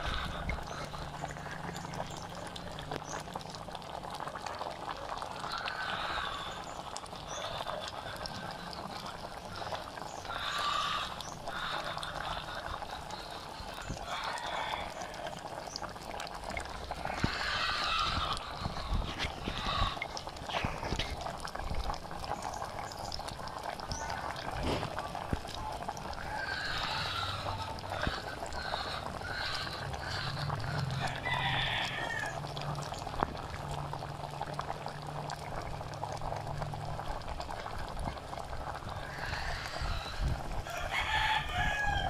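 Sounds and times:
chickens clucking: 0.0 - 3.1, 5.1 - 15.6, 16.8 - 21.2, 23.9 - 32.4, 38.1 - 42.0
soup bubbling in a pot: 0.0 - 42.0.

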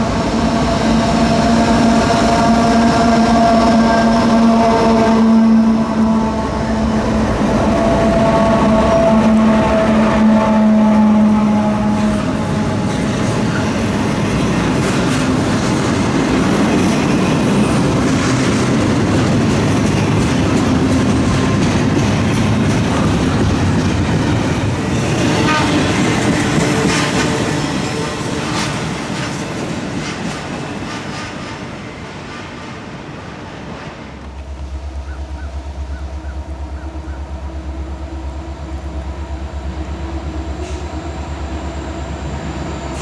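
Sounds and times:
freight train rumbling past: 0.0 - 43.0
wheels clattering on rails: 6.8 - 36.0.

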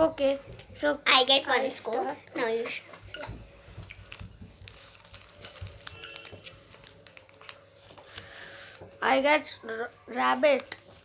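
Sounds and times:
paper rustling and unfolding: 3.7 - 9.1, 10.3 - 11.0.

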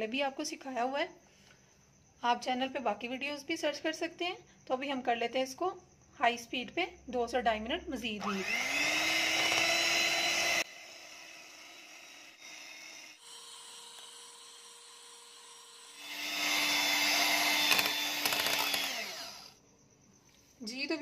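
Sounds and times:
electric hand mixer whine: 8.2 - 19.6.

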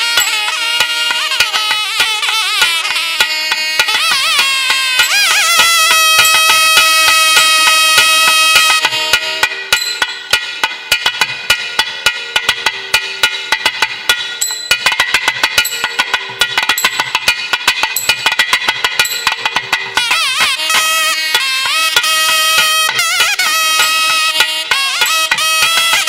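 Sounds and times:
reed horn holding a note: 0.0 - 9.7
fast sharp drum strokes: 0.0 - 26.0.

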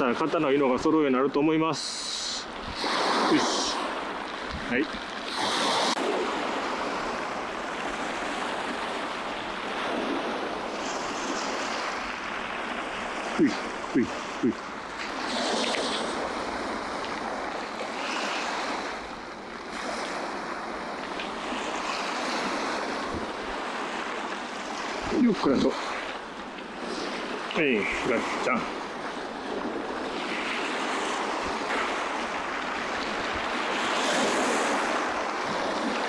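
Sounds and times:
waves washing on pebble beach: 1.7 - 36.0.

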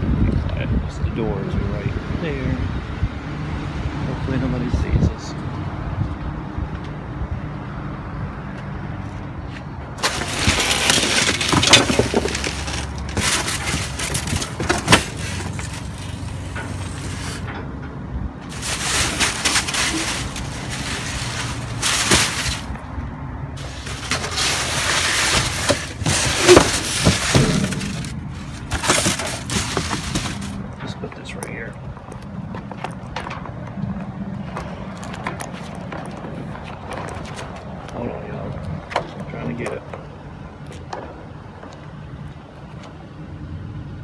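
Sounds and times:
rustling and crunching: 9.5 - 17.7, 18.4 - 33.6
rummaging through boxes and bags: 10.0 - 17.5, 18.5 - 22.9, 23.6 - 30.8.

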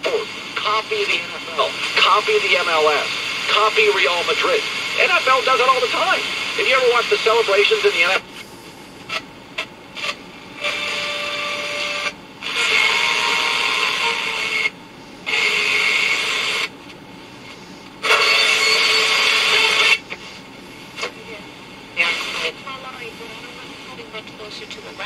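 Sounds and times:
radio static hiss: 0.0 - 25.0.

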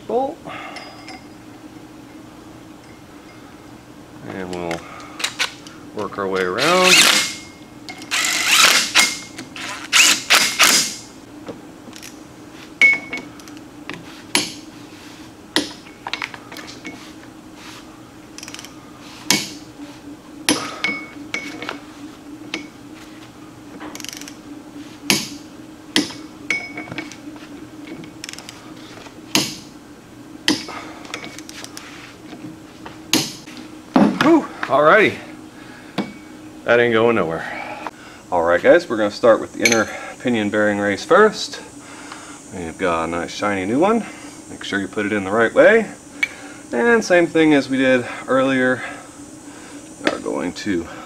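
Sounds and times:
steady low hum: 0.0 - 51.0
cordless drill running: 6.6 - 7.4, 8.1 - 10.8
torque wrench clicks: 18.4 - 18.7, 23.9 - 24.4.

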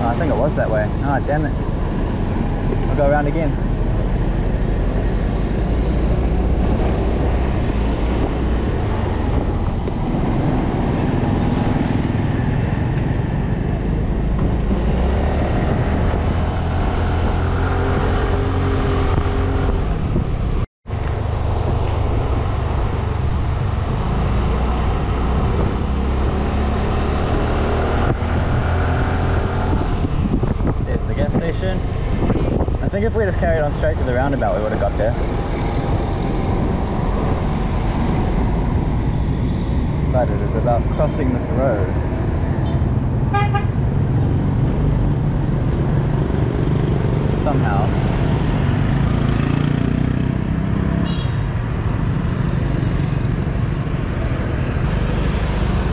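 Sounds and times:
road and wind noise: 0.0 - 55.9.

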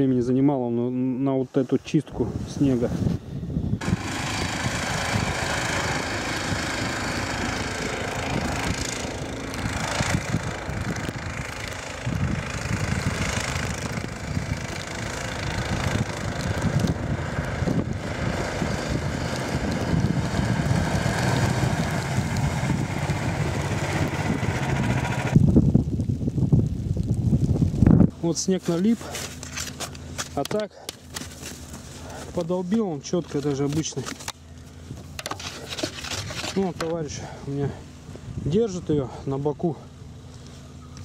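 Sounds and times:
snow tug engine running: 3.8 - 25.4.

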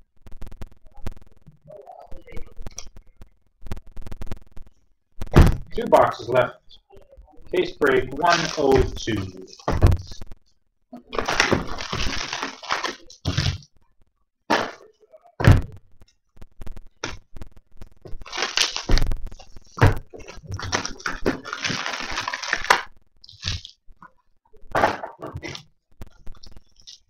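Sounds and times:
plastic wrap crinkling and tearing: 7.6 - 10.2, 11.1 - 13.7, 18.1 - 23.8.

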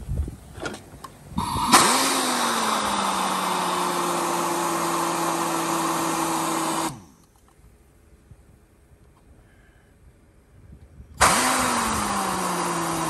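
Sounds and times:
rushing exhaust air: 1.3 - 7.2, 9.3 - 13.0
pneumatic impact wrench whine: 1.4 - 7.3, 11.2 - 13.0.

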